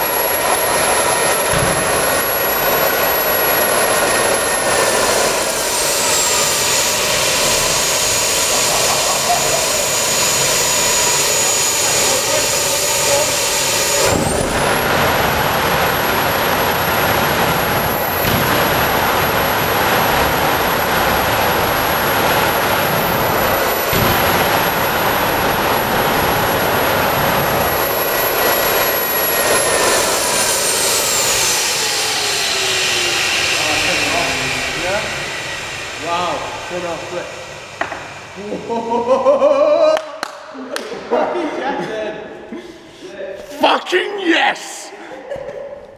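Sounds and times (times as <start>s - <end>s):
loud rushing noise: 0.0s - 38.7s
gas turbine whine: 0.0s - 41.2s.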